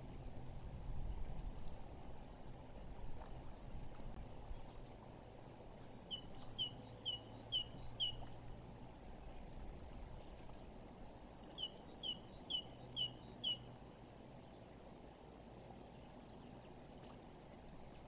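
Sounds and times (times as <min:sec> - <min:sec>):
faint outdoor background: 0:00.0 - 0:18.0
songbird two-note calls: 0:05.9 - 0:08.2, 0:11.4 - 0:13.6.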